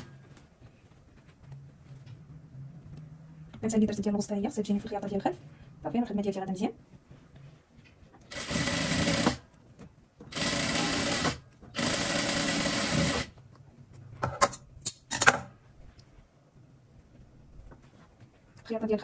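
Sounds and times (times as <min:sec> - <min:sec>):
sewing machine stitching: 0:08.3 - 0:09.4, 0:10.3 - 0:13.3.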